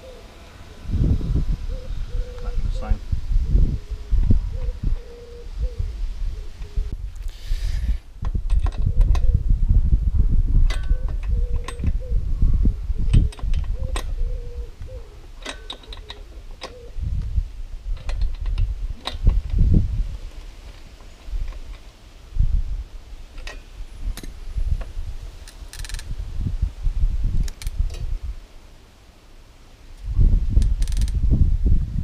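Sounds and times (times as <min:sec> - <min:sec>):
low rumble: 0:00.0 - 0:07.2
ratchet clicking: 0:25.4 - 0:26.1, 0:30.6 - 0:31.2.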